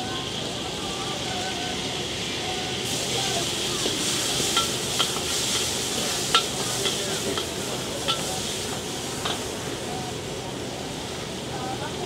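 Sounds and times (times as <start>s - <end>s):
food sizzling in hot oil: 0.0s - 12.0s
metal utensils clinking on wok: 3.8s - 8.6s, 9.2s - 9.5s.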